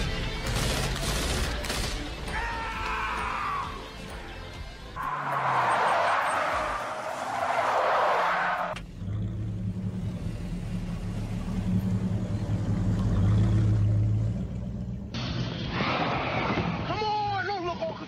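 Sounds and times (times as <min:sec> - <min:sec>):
tyres skidding: 0:02.8 - 0:17.0
car engine rumbling: 0:04.9 - 0:15.3.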